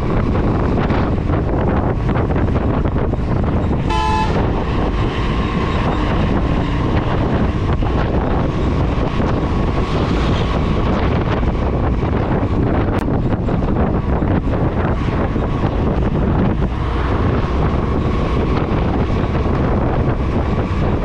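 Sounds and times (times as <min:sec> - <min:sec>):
wind rush on microphone: 0:00.0 - 0:21.0
motorcycle horn honk: 0:03.9 - 0:04.6.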